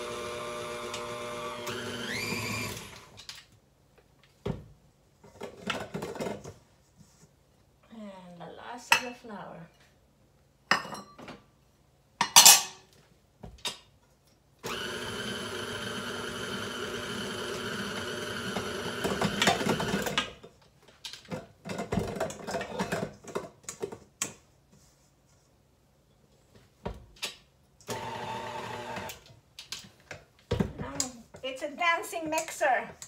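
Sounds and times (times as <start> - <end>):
stand mixer motor running: 0.0 - 2.9, 14.7 - 20.0, 27.9 - 29.1.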